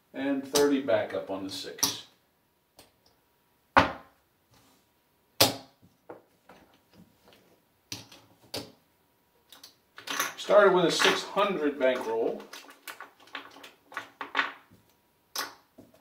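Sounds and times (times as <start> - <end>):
casino chips clacking: 9.5 - 14.7.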